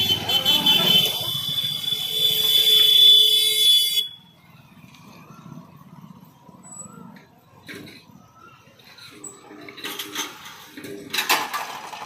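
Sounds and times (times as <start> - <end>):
shrill crossing warning buzzer: 0.0 - 4.3
faint motorcycle engines: 0.0 - 12.0.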